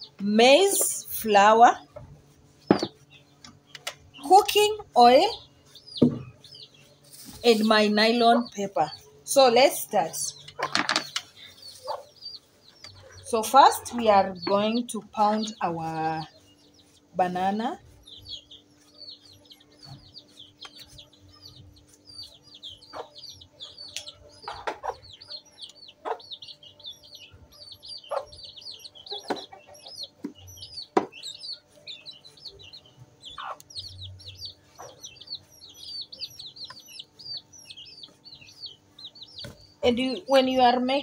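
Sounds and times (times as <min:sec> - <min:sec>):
birds chirping: 0:00.0 - 0:41.0
pestle pounding dull knocks: 0:02.7 - 0:03.0, 0:06.0 - 0:06.4.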